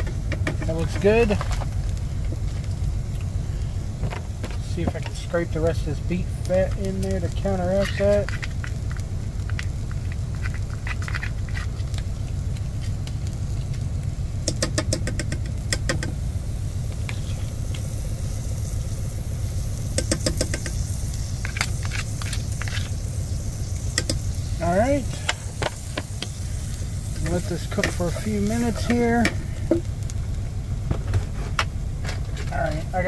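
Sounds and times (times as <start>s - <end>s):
diesel engine idling: 0.0s - 33.0s.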